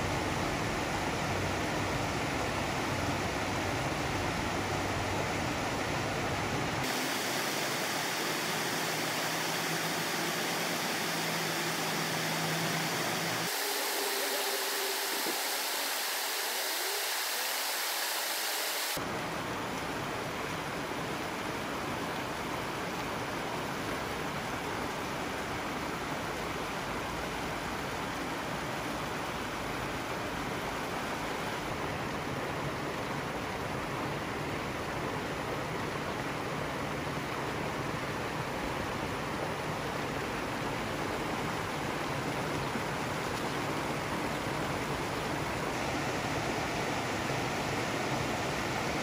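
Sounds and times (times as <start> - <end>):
water rushing from pipes: 6.7 - 19.1.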